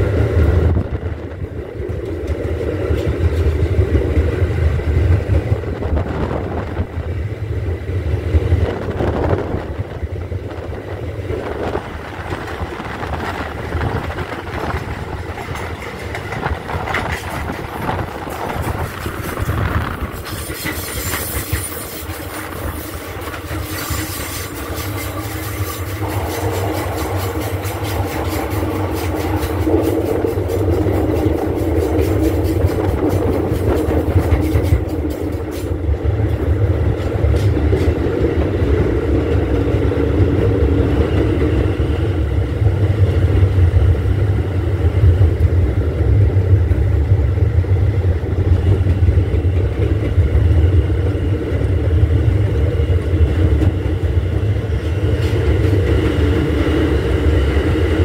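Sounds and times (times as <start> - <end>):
subway wheels rumbling on rails: 0.0 - 58.0.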